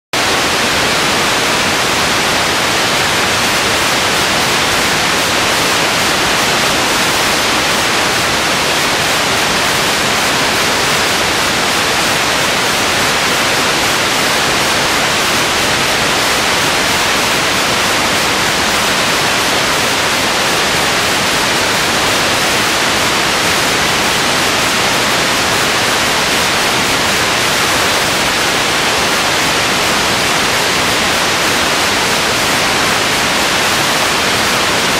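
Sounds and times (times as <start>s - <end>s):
loud static hiss: 0.1s - 34.9s.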